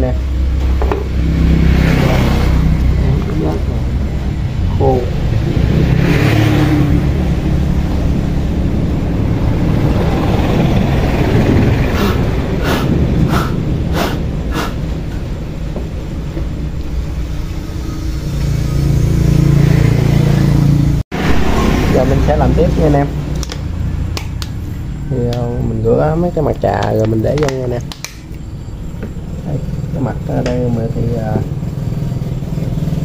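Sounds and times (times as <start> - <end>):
engine humming: 0.0 - 33.0.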